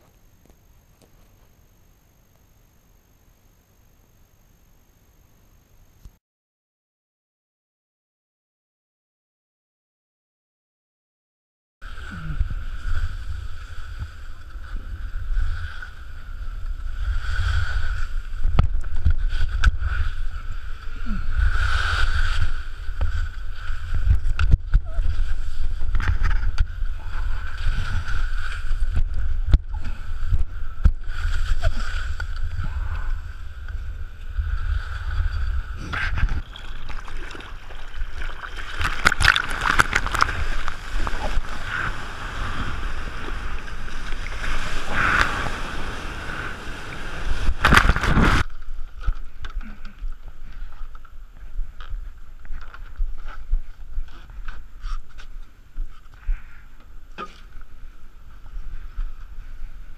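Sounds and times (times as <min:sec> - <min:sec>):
skis sliding on snow: 0:11.9 - 0:49.0
sea water rushing and splashing: 0:36.0 - 0:48.5.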